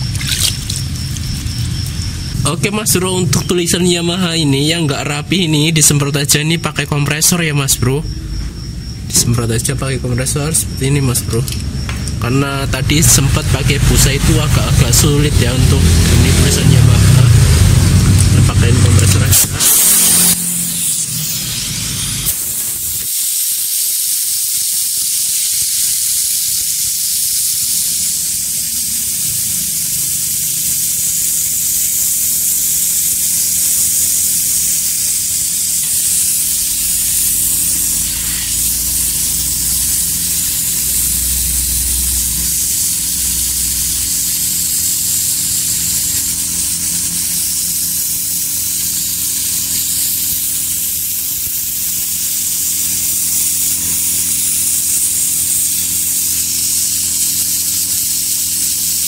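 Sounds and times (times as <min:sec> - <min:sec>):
compressed air hissing: 0:00.0 - 0:06.0, 0:06.7 - 0:59.0.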